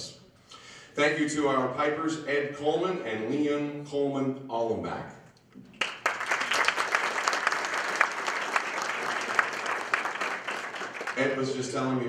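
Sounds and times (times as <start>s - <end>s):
people applauding: 5.7s - 12.0s.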